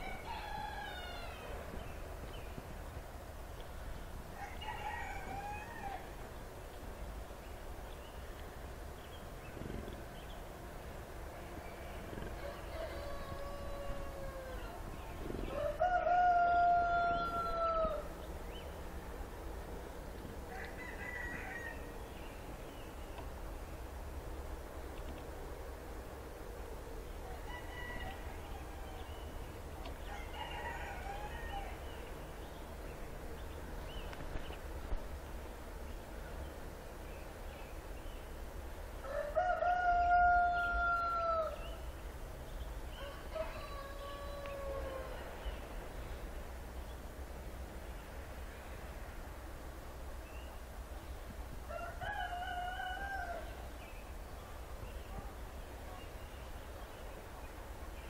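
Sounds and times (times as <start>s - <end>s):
rooster crowing: 0.0s - 1.6s, 4.4s - 6.2s, 12.4s - 14.8s, 15.4s - 18.1s, 20.5s - 22.0s, 27.2s - 29.2s, 30.0s - 31.9s, 39.0s - 41.7s, 42.9s - 45.6s, 51.7s - 53.6s.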